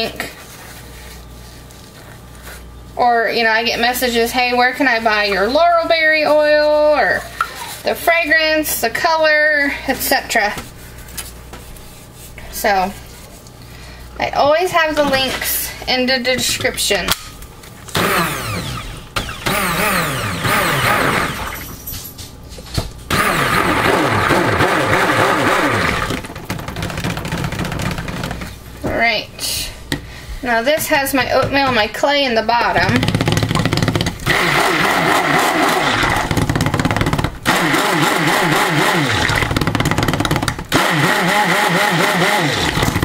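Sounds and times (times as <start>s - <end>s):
stick blender whirring: 17.9s - 21.7s, 23.1s - 28.6s, 32.7s - 43.0s.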